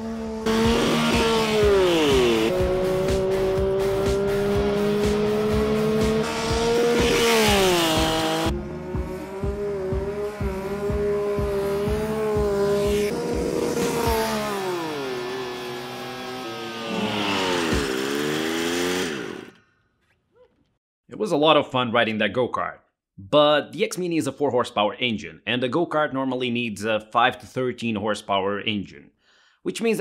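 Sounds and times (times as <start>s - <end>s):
go-kart engine passing: 0.0s - 19.6s.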